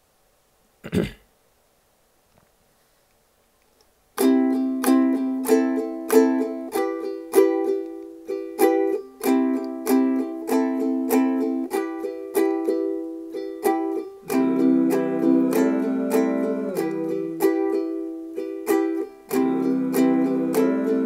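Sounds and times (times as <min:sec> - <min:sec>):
ukulele strumming chords: 0:04.2 - 0:21.0.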